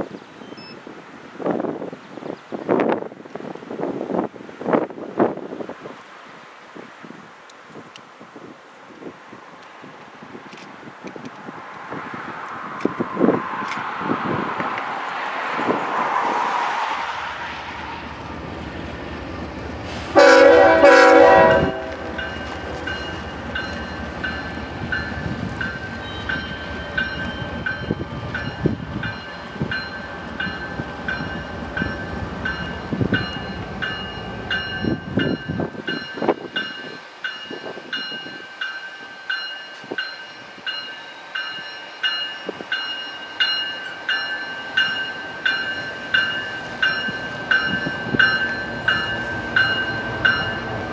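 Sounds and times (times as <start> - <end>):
passing freight train rumble: 8.3 - 50.9
locomotive horn blast: 20.1 - 22.4
crossing bell ringing: 20.2 - 50.9.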